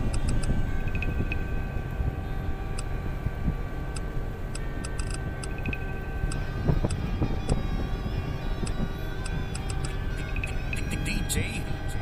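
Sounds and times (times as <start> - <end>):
diesel engine rumbling: 0.0 - 12.0
faint steady whine: 0.0 - 12.0
light ticks: 8.6 - 10.6.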